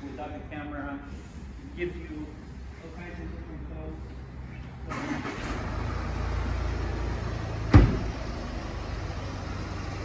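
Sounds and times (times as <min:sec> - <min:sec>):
car engine rumbling: 0:00.0 - 0:10.0
car door shutting: 0:07.7 - 0:08.1.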